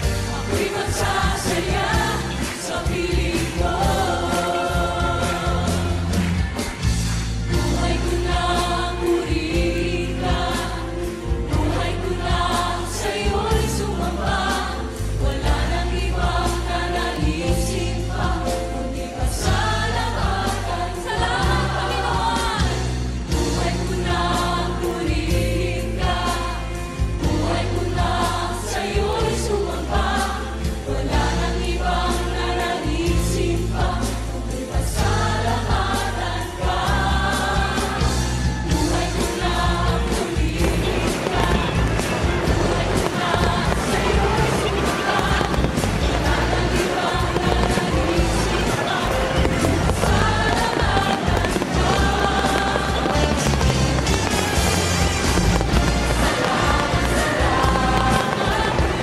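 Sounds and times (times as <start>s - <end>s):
voices singing: 0.0s - 6.4s, 7.4s - 59.0s
steady bass line: 38.6s - 59.0s.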